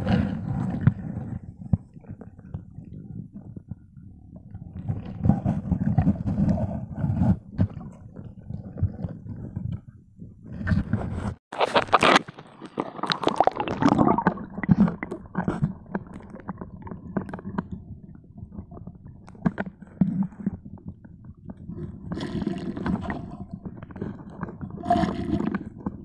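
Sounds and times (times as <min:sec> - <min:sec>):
stones knocking and scraping: 0:11.6 - 0:17.6
water gurgling underwater: 0:11.6 - 0:26.0.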